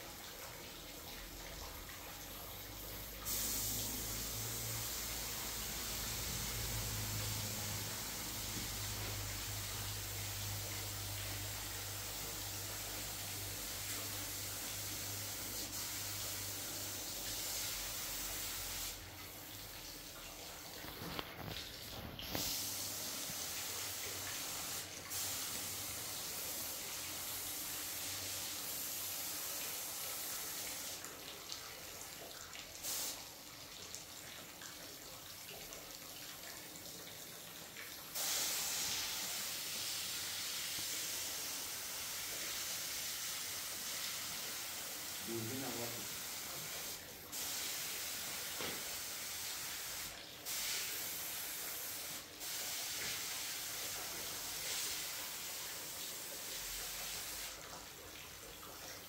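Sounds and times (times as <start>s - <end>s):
spray gun hissing: 3.0s - 19.4s, 22.3s - 31.0s, 32.8s - 33.2s, 38.2s - 57.6s.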